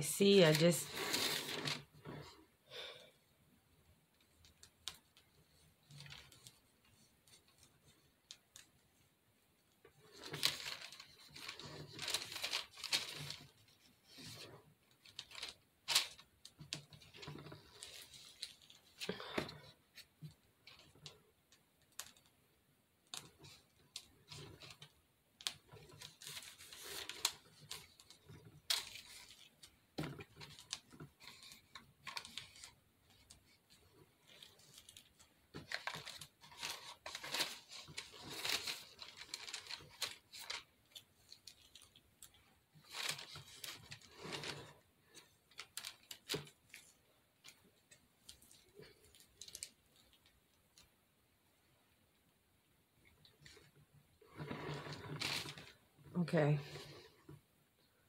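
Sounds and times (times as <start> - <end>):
plastic piping bag crinkling: 0.0 - 2.4, 9.8 - 22.4, 23.0 - 51.0.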